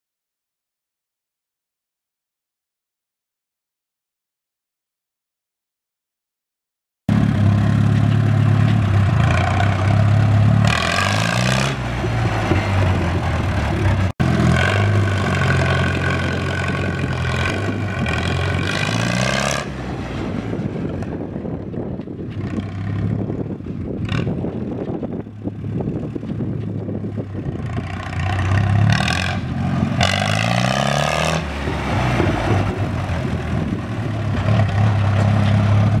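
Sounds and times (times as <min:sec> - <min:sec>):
tractor engine running: 0:07.1 - 0:36.0.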